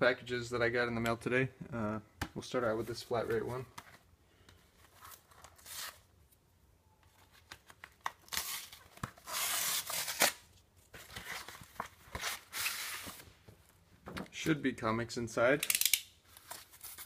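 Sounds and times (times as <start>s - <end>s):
envelope tearing: 8.2s - 10.5s.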